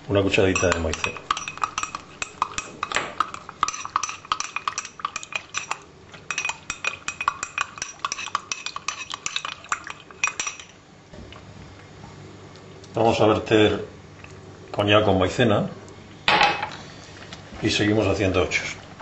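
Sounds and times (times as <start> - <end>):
teaspoon clinking against glass: 0.5 - 9.6.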